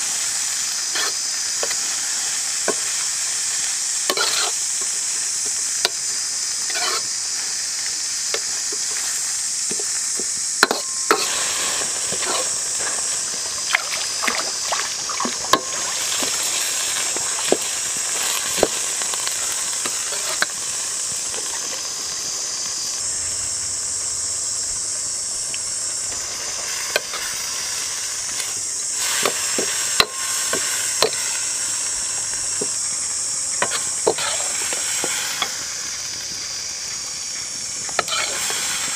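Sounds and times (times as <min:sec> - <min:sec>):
food sizzling in a wok: 0:00.0 - 0:38.9
metal spatula scraping a pan: 0:04.1 - 0:04.6, 0:06.7 - 0:07.1, 0:12.1 - 0:12.6, 0:38.0 - 0:38.6.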